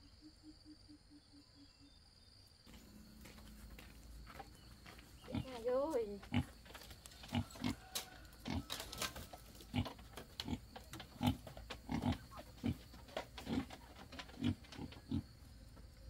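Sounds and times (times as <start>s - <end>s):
pig grunting: 9.7s - 15.2s.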